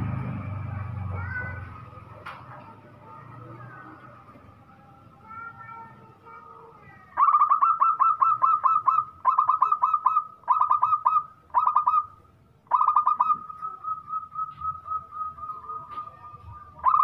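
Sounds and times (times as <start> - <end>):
dove cooing: 7.1 - 17.0.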